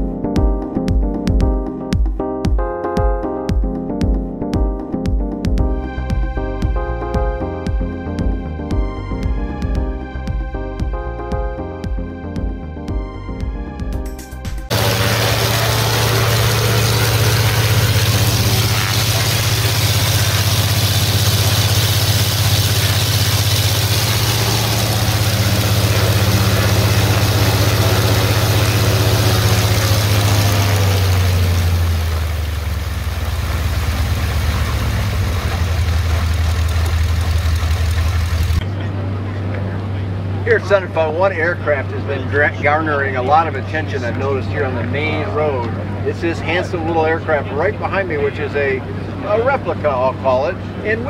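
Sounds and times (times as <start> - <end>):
model aircraft engine running: 14.7 - 38.8.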